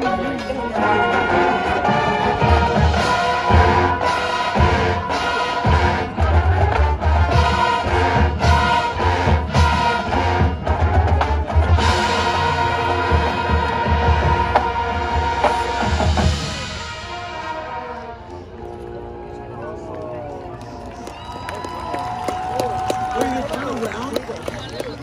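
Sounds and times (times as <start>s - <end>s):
brass holding chords: 0.0s - 19.9s.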